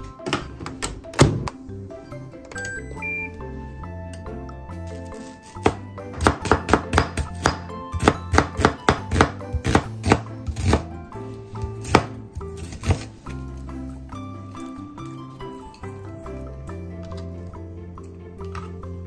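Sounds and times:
background music: 0.0 - 19.0
knife slicing onion on board: 5.5 - 10.9, 11.7 - 13.1.

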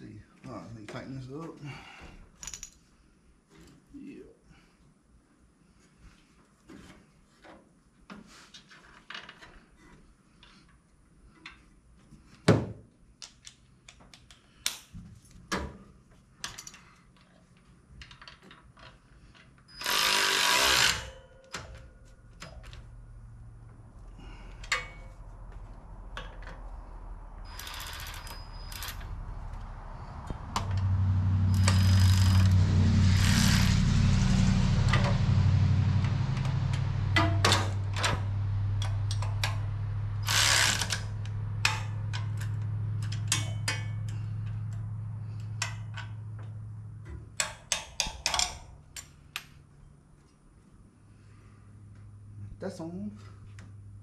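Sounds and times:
steady low hum: 20.8 - 47.4
hand tools clicking on metal: 38.8 - 44.8, 47.4 - 49.5.

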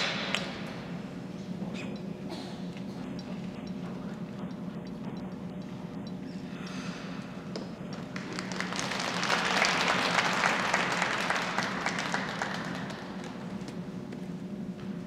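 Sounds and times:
audience applauding: 8.1 - 13.5.

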